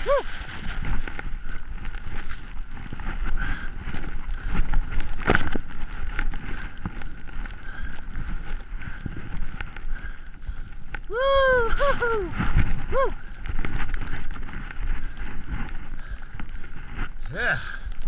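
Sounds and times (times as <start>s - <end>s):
skis scuffing through snow: 0.0s - 1.1s
wind rushing over microphone: 0.0s - 18.0s.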